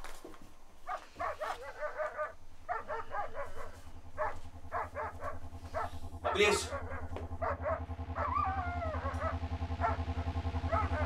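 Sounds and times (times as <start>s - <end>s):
low hum: 0.0s - 11.0s
dog barking and yelping: 0.8s - 11.0s.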